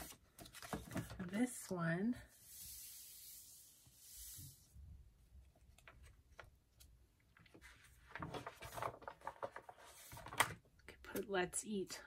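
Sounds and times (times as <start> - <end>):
paper rustling: 7.5 - 10.5.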